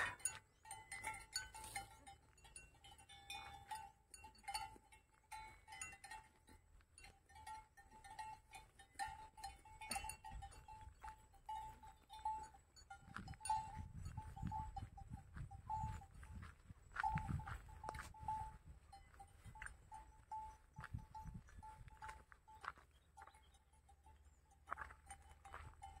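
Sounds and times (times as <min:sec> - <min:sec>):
footsteps on paved road: 0:09.9 - 0:26.0.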